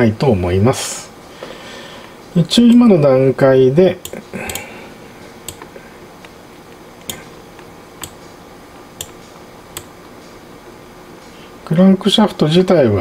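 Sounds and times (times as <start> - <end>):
faint room hiss: 0.0 - 13.0
computer mouse clicks: 9.0 - 9.2.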